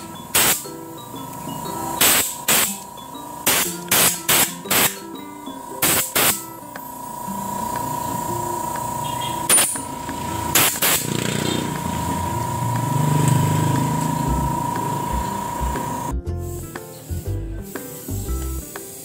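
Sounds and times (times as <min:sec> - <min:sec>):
compressed air blasts: 0:00.0 - 0:00.8, 0:02.0 - 0:02.8, 0:03.4 - 0:05.1, 0:05.8 - 0:06.5, 0:10.4 - 0:11.9, 0:12.8 - 0:19.0
steady hum: 0:00.0 - 0:16.1.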